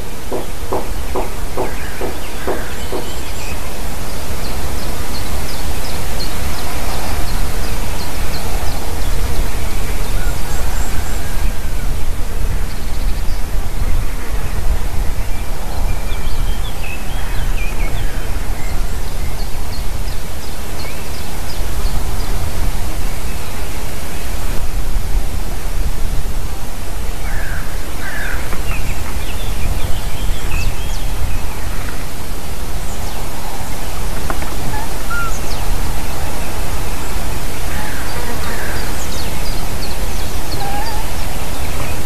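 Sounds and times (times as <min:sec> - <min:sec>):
wind on microphone: 0:00.0 - 0:42.0
faint bird chirps: 0:34.7 - 0:35.7.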